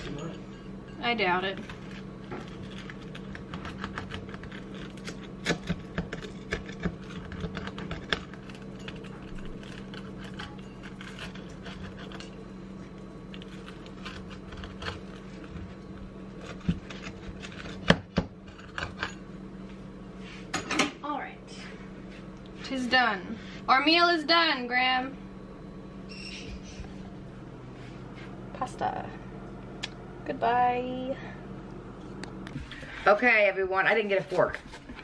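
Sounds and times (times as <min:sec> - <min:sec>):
steady low hum: 0:00.0 - 0:35.0
pizza cutter clicking and scraping plate: 0:01.4 - 0:12.4, 0:13.3 - 0:19.2.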